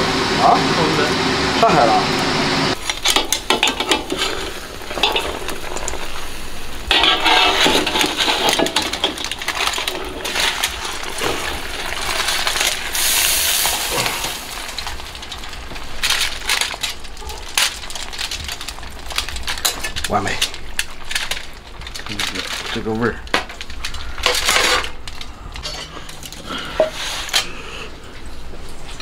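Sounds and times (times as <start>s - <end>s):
hiss: 12.3s - 14.6s.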